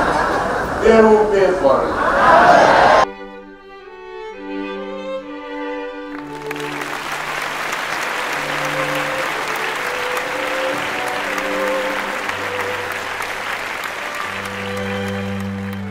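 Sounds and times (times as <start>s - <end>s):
audience applause: 6.1s - 15.9s.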